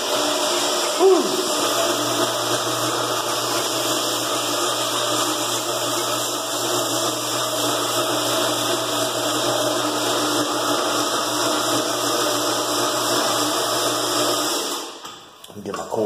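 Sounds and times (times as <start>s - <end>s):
floor buffer motor hum: 0.0s - 16.0s.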